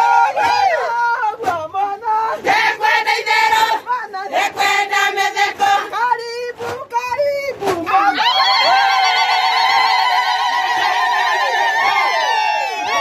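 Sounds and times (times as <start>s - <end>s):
women singing chant in chorus: 0.0s - 6.3s.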